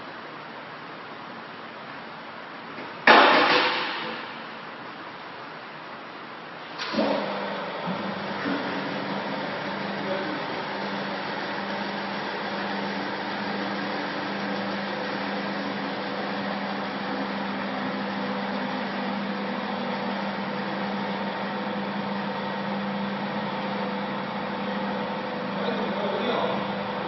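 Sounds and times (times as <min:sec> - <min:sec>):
hydraulic press humming: 0:06.6 - 0:27.0.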